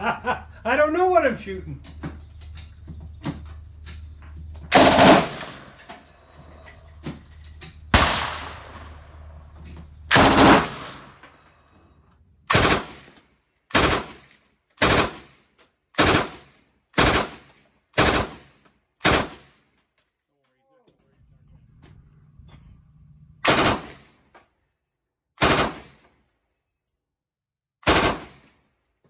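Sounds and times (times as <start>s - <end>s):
machine gun automatic bursts: 4.7s - 5.8s, 10.1s - 11.2s, 12.5s - 13.1s, 13.7s - 15.3s, 16.0s - 18.4s, 19.0s - 19.4s, 23.4s - 24.0s, 25.4s - 25.9s, 27.9s - 28.4s.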